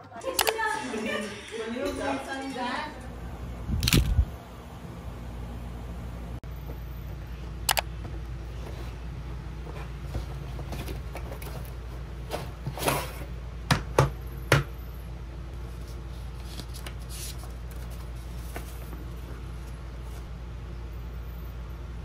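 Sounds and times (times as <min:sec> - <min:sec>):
steady low hum: 0:02.1 - 0:12.6.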